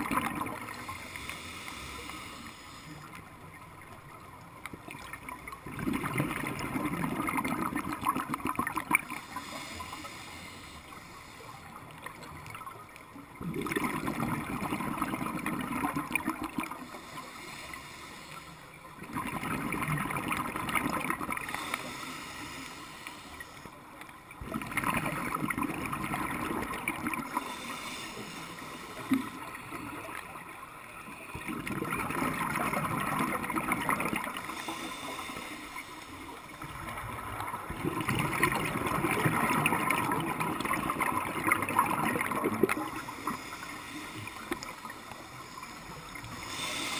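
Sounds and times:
gurgling exhaled bubbles: 0.0s - 0.9s, 4.8s - 9.4s, 13.3s - 17.1s, 19.0s - 21.8s, 24.4s - 27.6s, 31.3s - 34.9s, 36.5s - 43.6s
diver breathing through regulator: 0.6s - 3.2s, 9.2s - 11.8s, 16.6s - 18.8s, 21.3s - 23.8s, 27.2s - 30.2s, 34.2s - 36.3s, 42.7s - 46.9s.

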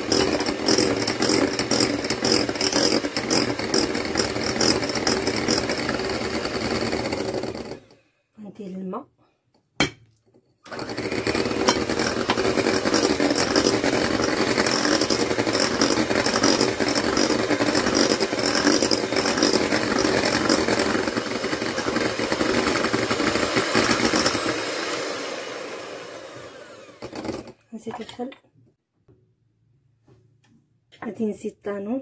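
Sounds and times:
electric hand mixer whisking batter: 0.0s - 8.0s, 10.7s - 27.6s.

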